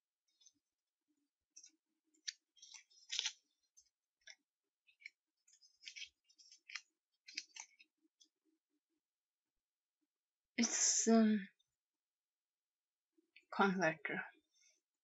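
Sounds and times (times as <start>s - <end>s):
small objects clicking and rustling: 1.6s - 7.9s.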